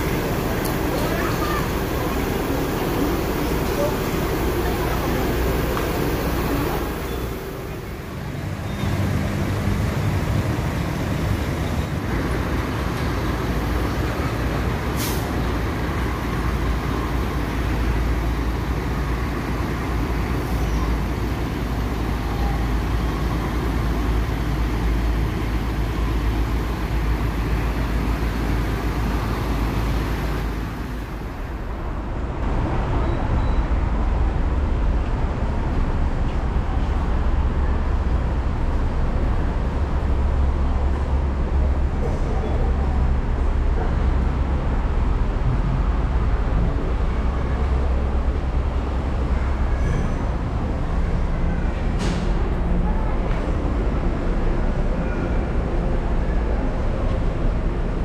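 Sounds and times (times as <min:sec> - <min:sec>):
diesel coach engines rumbling: 0:00.0 - 0:58.0
air brake hiss: 0:14.9 - 0:15.4.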